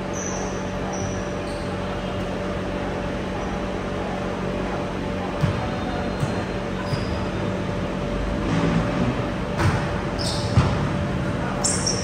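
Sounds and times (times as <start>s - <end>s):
steady hum: 0.0s - 12.0s
sneaker squeaks on court: 0.1s - 2.1s, 5.4s - 7.4s, 9.6s - 10.9s, 11.6s - 12.0s
volleyball hits: 9.5s - 11.1s.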